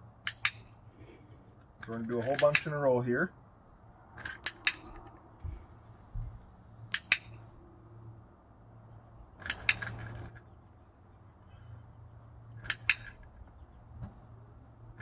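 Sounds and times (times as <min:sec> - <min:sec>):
dog-training clicker clicks: 0:00.2 - 0:00.7, 0:01.8 - 0:02.8, 0:04.2 - 0:05.1, 0:06.8 - 0:07.4, 0:09.4 - 0:10.4, 0:12.6 - 0:13.3.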